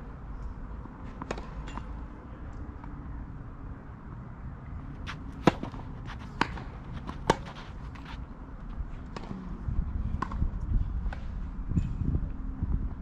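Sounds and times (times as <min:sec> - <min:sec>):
racket striking tennis ball: 0:05.0 - 0:08.3
tennis ball bouncing on clay: 0:05.0 - 0:08.3.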